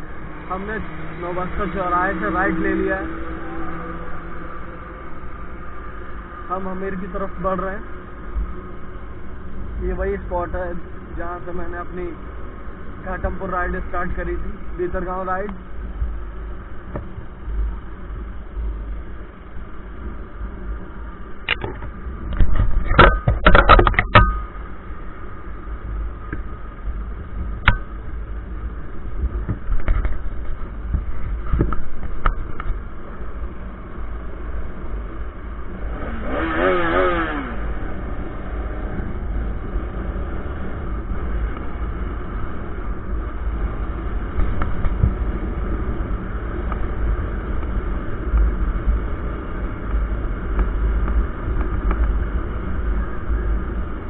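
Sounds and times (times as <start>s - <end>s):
motorcycle engine: 0.0s - 54.0s
wind rumble on microphone: 0.0s - 54.0s
short wavering pitched tone: 2.2s - 6.4s.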